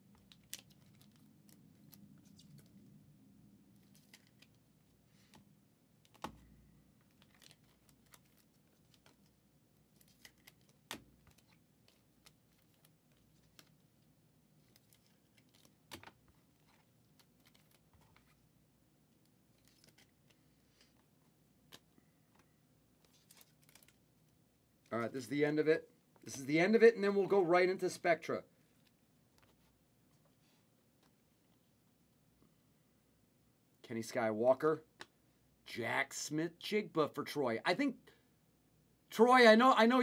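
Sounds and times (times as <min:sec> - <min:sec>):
trading cards clicking and rustling: 0:00.1 - 0:02.8, 0:03.8 - 0:04.6, 0:06.0 - 0:14.0, 0:14.6 - 0:18.4, 0:19.5 - 0:24.1.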